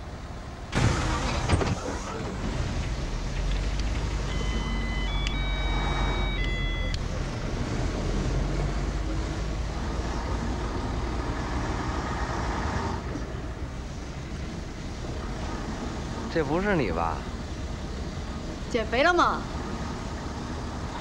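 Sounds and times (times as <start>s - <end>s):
bus engine running: 0.0s - 21.0s
road rumble: 0.0s - 21.0s
high steady tones: 4.2s - 7.5s.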